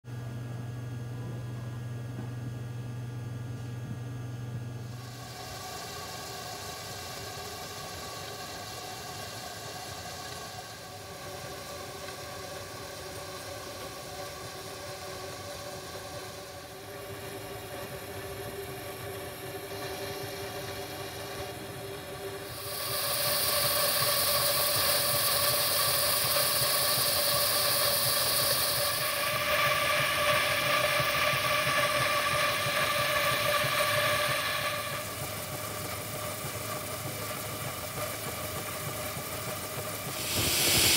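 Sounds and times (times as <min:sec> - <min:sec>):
steam engine hiss and hum: 0:03.3 - 0:40.9
loud hiss of escaping steam: 0:05.0 - 0:35.4, 0:40.0 - 0:40.9.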